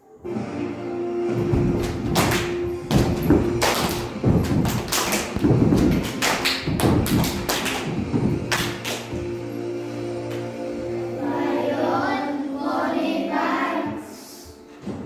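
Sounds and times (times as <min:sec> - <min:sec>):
recorded music: 0:00.0 - 0:15.0
children clapping: 0:01.8 - 0:09.4.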